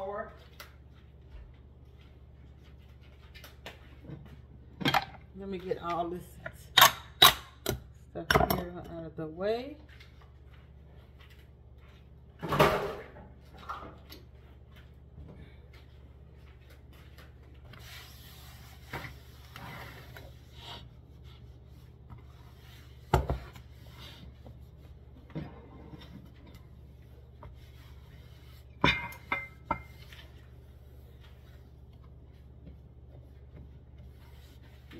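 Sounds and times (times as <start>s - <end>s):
low steady hum: 0.0s - 34.9s
paper towel rubbing counter: 16.9s - 25.2s, 29.9s - 34.9s.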